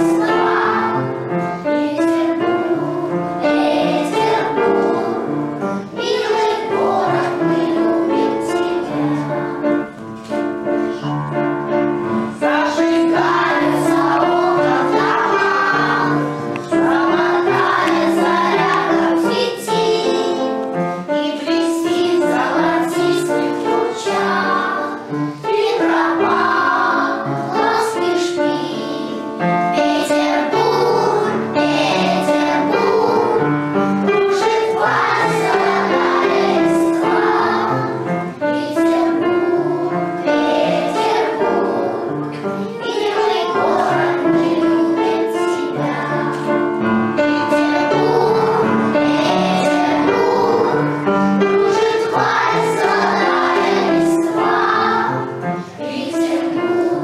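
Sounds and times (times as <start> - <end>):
children's choir singing: 0.0 - 57.0
instrumental accompaniment: 0.0 - 57.0.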